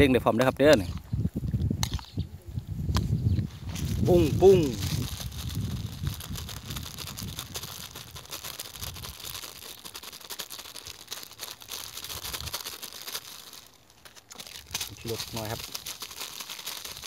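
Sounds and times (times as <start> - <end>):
plastic bags crinkling: 3.6 - 17.0.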